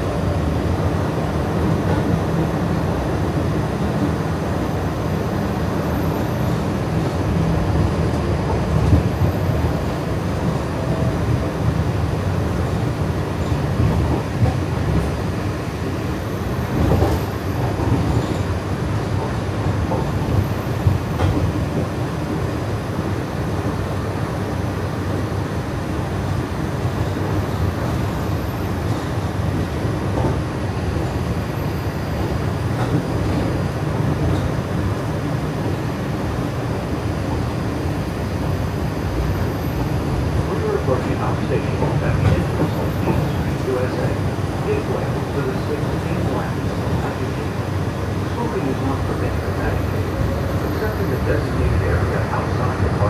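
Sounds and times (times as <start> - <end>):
train rumbling along track: 0.0 - 53.0
faint track clacks: 41.8 - 43.4.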